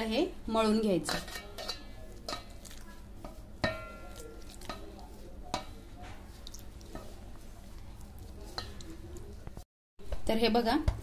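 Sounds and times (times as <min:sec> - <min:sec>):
hands rubbing dough in bowl: 0:02.1 - 0:09.6.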